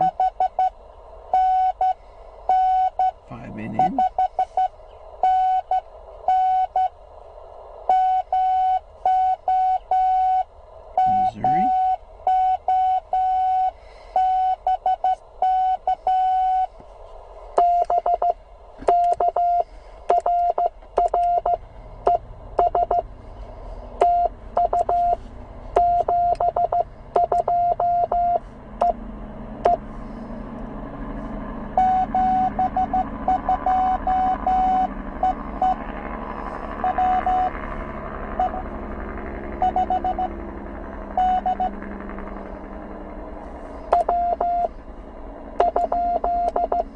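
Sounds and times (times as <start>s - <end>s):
morse code beeps: 0.0s - 0.8s, 1.4s - 6.9s, 7.9s - 16.7s, 17.6s - 23.0s, 24.0s - 25.2s, 25.8s - 29.0s, 31.8s - 35.8s, 36.8s - 37.6s, 38.4s - 38.6s, 39.6s - 40.3s, 41.2s - 41.8s, 43.9s - 44.7s, 45.6s - 46.9s
radio band hiss: 3.3s - 4.6s.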